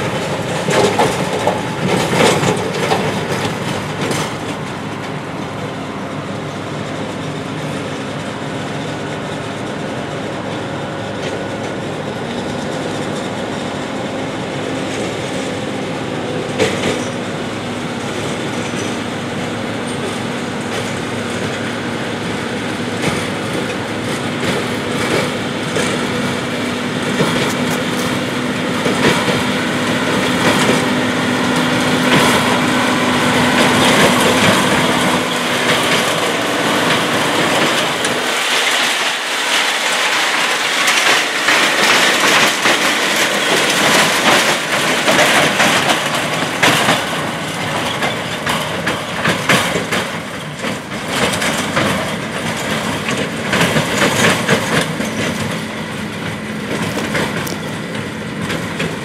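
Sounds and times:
tractor diesel engine running: 0:00.0 - 0:59.0
wagon steel body rattling: 0:18.2 - 0:59.0.

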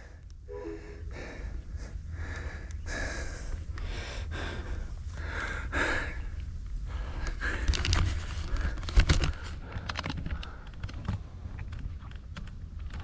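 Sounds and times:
person breathing loudly: 0:00.0 - 0:10.8
steady low rumble: 0:00.0 - 0:12.8
sharp clicks and rattles: 0:07.2 - 0:13.0.

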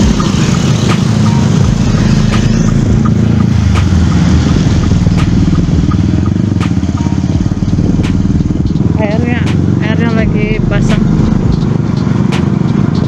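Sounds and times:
motorcycle engine running: 0:00.0 - 0:13.0
sharp ticking: 0:00.0 - 0:13.0.

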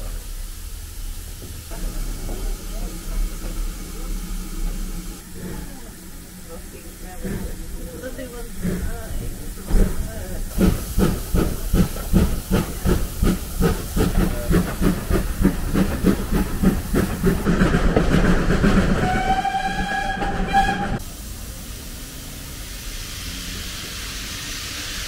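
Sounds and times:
steam locomotive chuffing: 0:00.0 - 0:25.0
steam whistle: 0:19.0 - 0:21.0.

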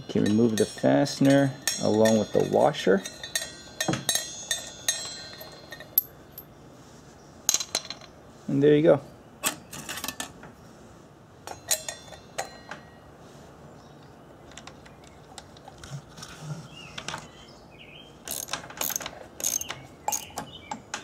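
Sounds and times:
metal clicks and clinks: 0:00.1 - 0:06.5, 0:11.4 - 0:12.8, 0:18.3 - 0:21.0.

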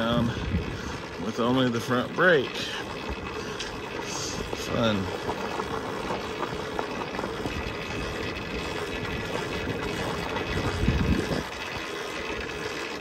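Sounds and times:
tyres crunching over loose stones: 0:02.8 - 0:13.0.

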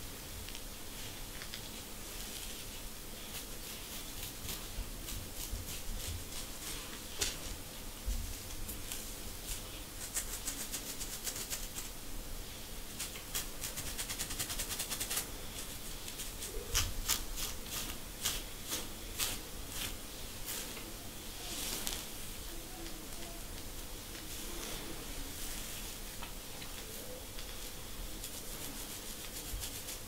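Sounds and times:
fingernails scratching scalp: 0:13.0 - 0:20.0, 0:28.2 - 0:30.0.

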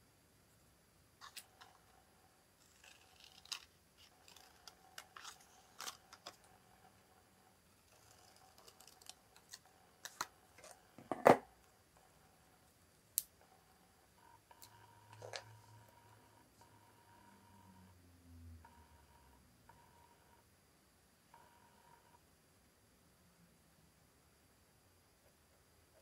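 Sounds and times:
scissors snipping paper: 0:03.0 - 0:06.4.

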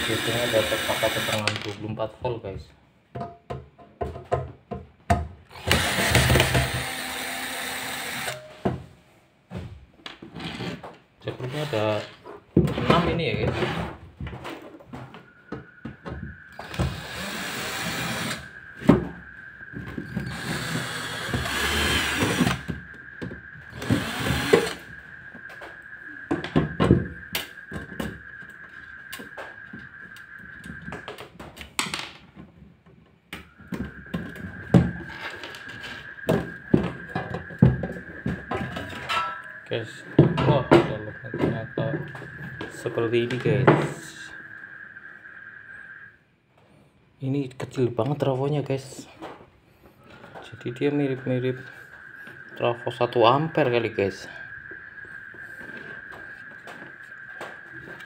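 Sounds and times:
cordless drill motor running: 0:00.0 - 0:01.4, 0:05.5 - 0:08.4, 0:16.6 - 0:18.4, 0:20.2 - 0:22.6, 0:23.7 - 0:24.8
thin high tone: 0:33.5 - 0:46.2.

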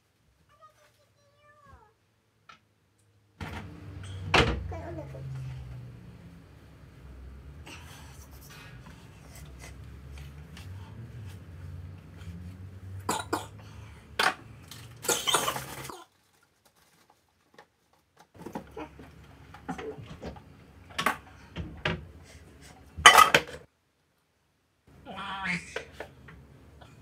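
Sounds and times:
person coughing: 0:13.1 - 0:13.6, 0:15.0 - 0:15.8.

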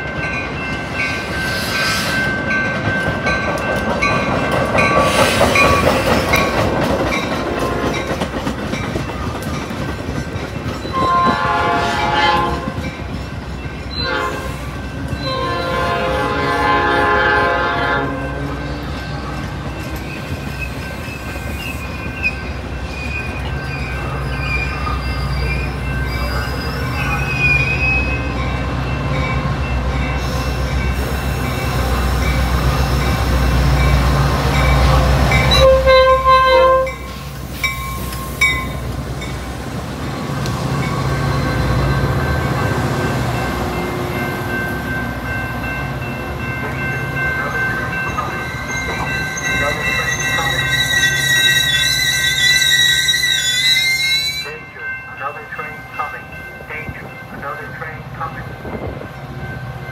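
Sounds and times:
train wheels clattering over rails: 0:00.0 - 0:13.8, 0:37.0 - 0:51.8
diesel locomotive rumble: 0:00.0 - 0:59.9
train horn blasts: 0:10.9 - 0:12.8, 0:14.0 - 0:18.4, 0:34.9 - 0:37.1
thin wheel squeal: 0:50.2 - 0:54.4.

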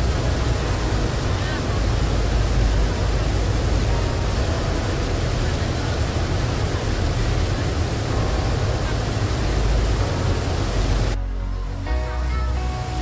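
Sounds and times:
waterfall roaring: 0:00.0 - 0:13.0.

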